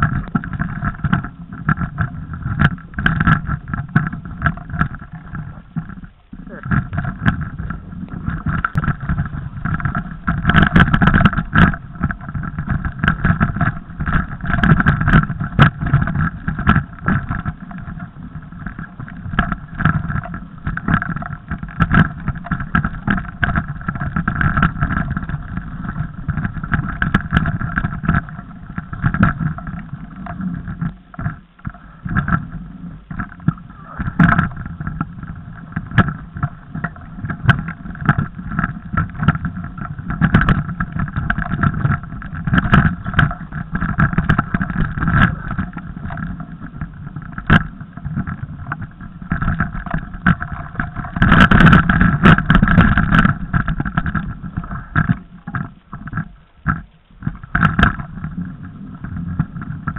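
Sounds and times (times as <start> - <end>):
bike knocking over rough ground: 0.0 - 32.5
bike tyres rumbling and rattling: 0.0 - 59.9.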